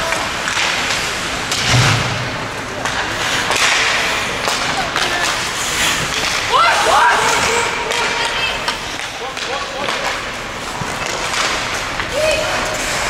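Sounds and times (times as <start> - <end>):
heavy thud: 1.5 - 2.6
skate blades scraping ice: 2.8 - 13.0.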